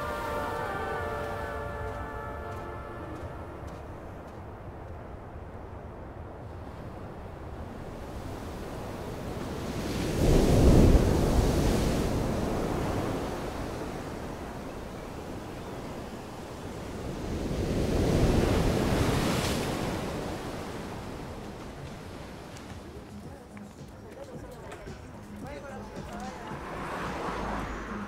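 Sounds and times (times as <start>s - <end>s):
surf rushing: 0.0s - 28.0s
waves breaking against rocks: 6.6s - 25.1s.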